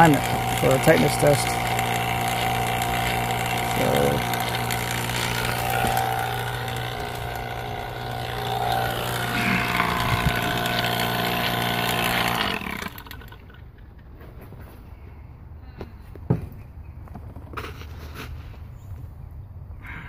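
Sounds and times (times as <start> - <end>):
vacuum pump running: 0.0 - 13.6.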